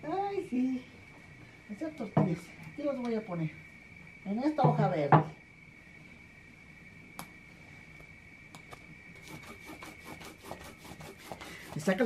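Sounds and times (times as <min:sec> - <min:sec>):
stone roller scraping on stone: 0:09.2 - 0:12.0.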